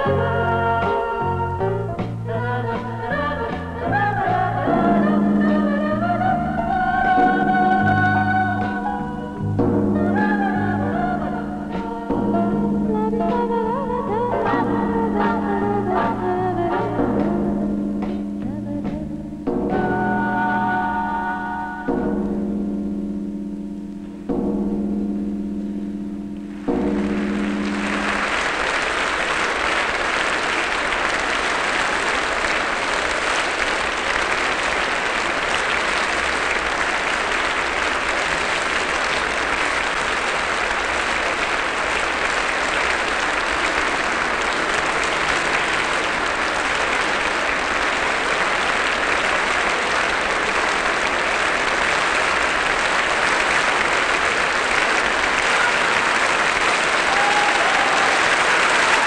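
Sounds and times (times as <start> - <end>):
deep gong-like chime: 21.1 - 28.7
audience applauding: 26.5 - 59.0.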